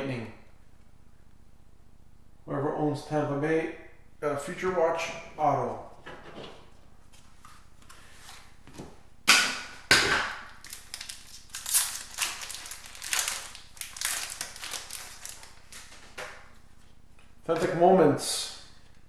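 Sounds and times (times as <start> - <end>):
foil pack ripping: 10.6 - 16.2
wrapper crinkling and rustling: 10.6 - 16.5.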